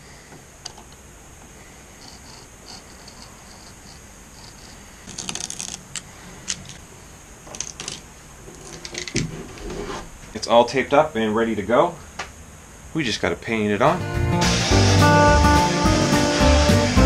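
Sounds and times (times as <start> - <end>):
scraping and rustling: 1.9 - 10.4
knife scratching tape: 2.1 - 5.9.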